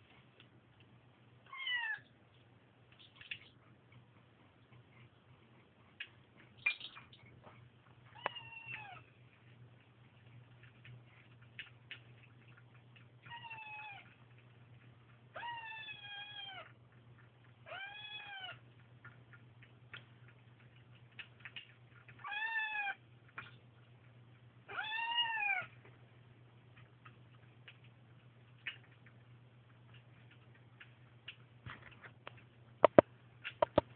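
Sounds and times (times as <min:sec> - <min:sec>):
small clicks of eating from bowls: 0:05.9 - 0:15.6, 0:16.4 - 0:24.4, 0:26.6 - 0:33.9.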